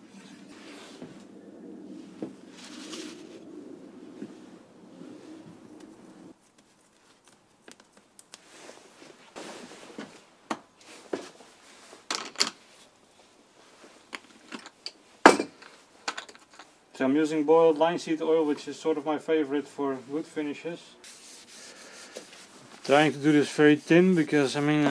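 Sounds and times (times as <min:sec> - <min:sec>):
small objects clicking and rustling: 0:12.1 - 0:12.6, 0:14.1 - 0:16.8.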